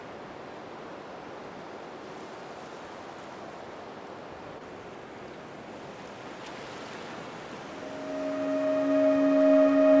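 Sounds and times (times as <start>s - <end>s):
ocean surf rushing: 7.6s - 10.0s.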